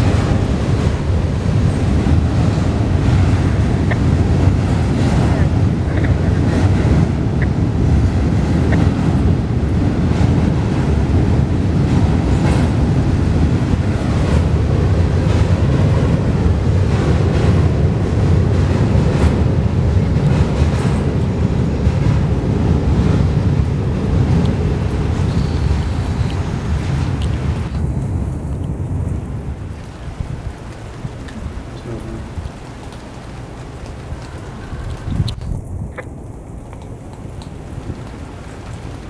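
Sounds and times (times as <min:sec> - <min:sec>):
wheels clacking on rail joints: 0:00.0 - 0:28.0
freight train rumbling over bridge: 0:00.0 - 0:36.0
wind buffeting microphone: 0:00.0 - 0:39.0.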